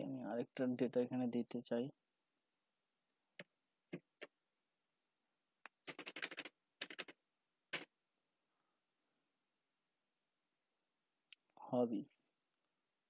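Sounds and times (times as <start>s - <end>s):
keyboard keys tapping: 5.7s - 7.1s.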